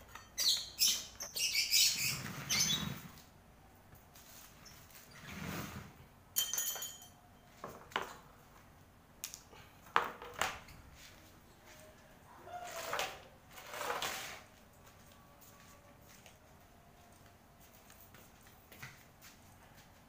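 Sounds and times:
scraping brushing sounds: 4.1s - 6.0s, 10.8s - 20.0s.

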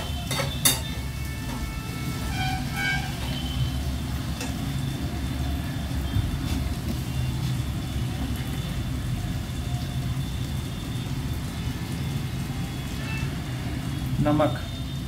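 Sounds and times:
vegetables frying in a pan: 0.0s - 15.0s.

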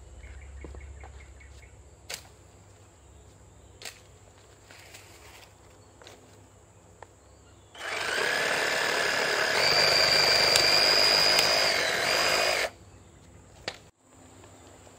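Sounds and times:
reciprocating saw cutting branch: 7.8s - 12.7s.

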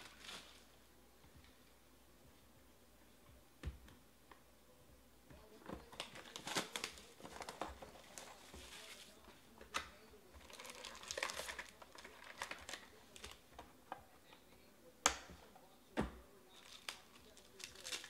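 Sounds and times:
foil packs crinkling: 0.0s - 0.7s, 5.9s - 9.2s, 10.4s - 13.4s, 16.5s - 18.0s.

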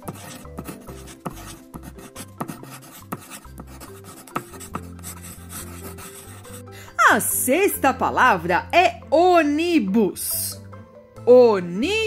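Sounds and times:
pencil scratching on paper: 0.0s - 6.6s
light background music: 0.0s - 12.0s.

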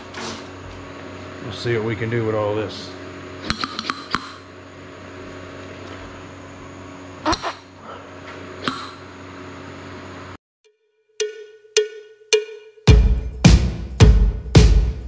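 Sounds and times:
steady hum: 0.0s - 10.4s.

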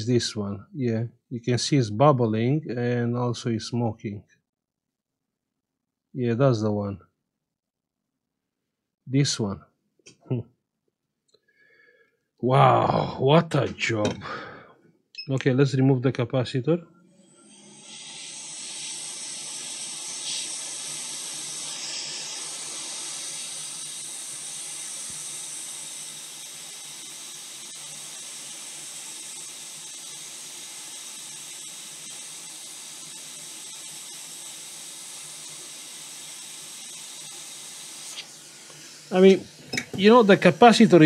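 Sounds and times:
hot air station hiss: 13.9s - 14.7s, 17.1s - 41.0s.

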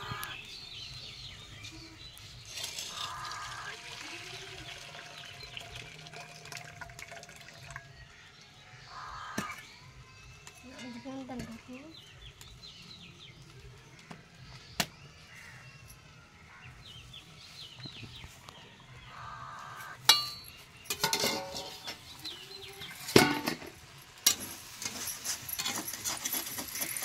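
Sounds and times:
metal utensils clinking: 2.5s - 4.0s, 20.0s - 27.0s
pots knocking: 20.1s - 22.0s, 23.1s - 24.4s.

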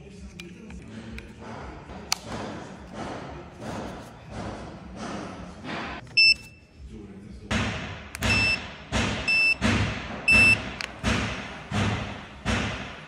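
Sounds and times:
music with thudding beat: 1.4s - 6.0s, 7.5s - 13.0s
remote control beeps: 6.1s - 6.7s, 8.2s - 8.6s, 9.3s - 9.6s, 10.3s - 10.6s.

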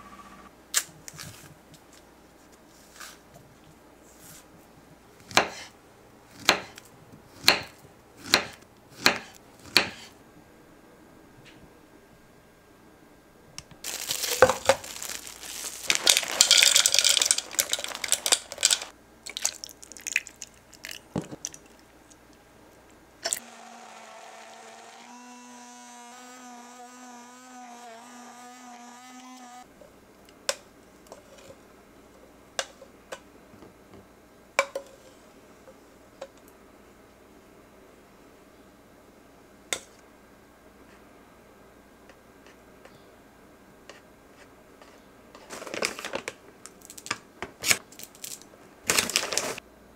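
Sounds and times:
loud crinkling and crunching: 13.8s - 20.7s, 45.5s - 49.6s
immersion blender humming: 23.3s - 29.6s.

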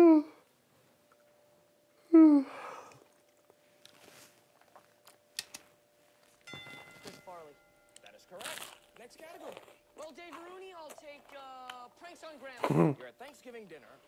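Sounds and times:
man groaning sigh: 2.1s - 3.0s.

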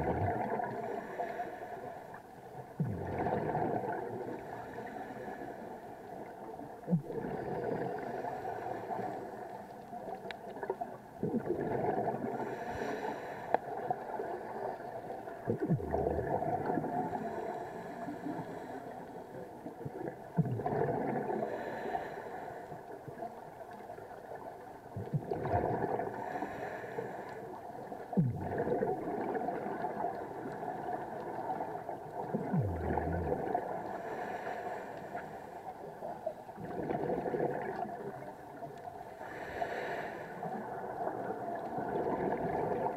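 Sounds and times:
bubbles gurgling: 0.0s - 1.0s, 2.8s - 4.6s, 6.9s - 9.0s, 10.6s - 12.7s, 14.0s - 17.7s, 19.8s - 21.8s, 24.9s - 26.4s, 28.1s - 34.1s, 36.5s - 38.3s, 40.6s - 42.9s
scuba regulator breathing: 0.7s - 2.2s, 4.4s - 6.0s, 7.6s - 9.5s, 12.3s - 14.8s, 16.9s - 19.4s, 21.3s - 22.9s, 26.0s - 27.6s, 32.9s - 35.8s, 39.1s - 41.2s.

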